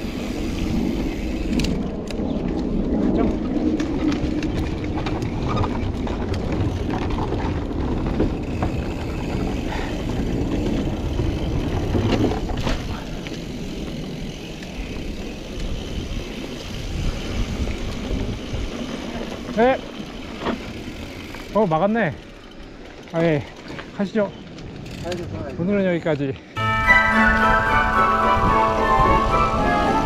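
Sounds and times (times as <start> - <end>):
wind rushing over microphone: 0.0 - 19.2
bike rattling over bumps: 0.0 - 26.3
bike tyres rolling on dirt: 0.0 - 26.6.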